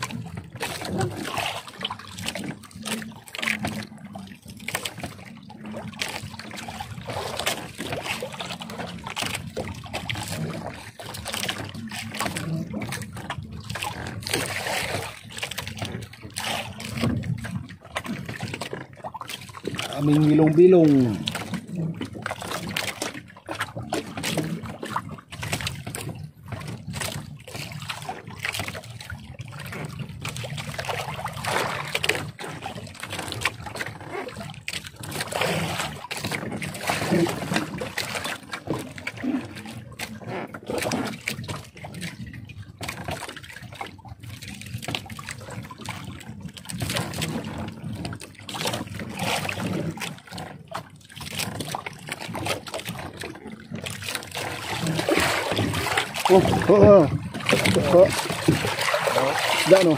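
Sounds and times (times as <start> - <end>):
water splashing off a net: 22.2 - 42.2, 44.6 - 59.9.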